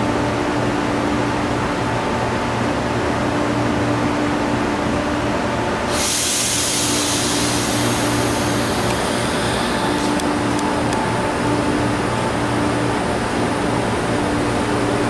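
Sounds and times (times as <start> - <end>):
electric train humming: 5.7 - 15.0.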